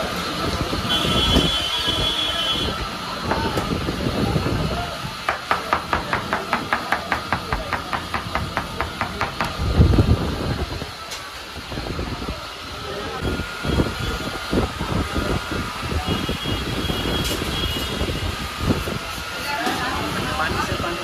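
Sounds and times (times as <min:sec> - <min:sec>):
busy background noise: 0:00.0 - 0:21.0.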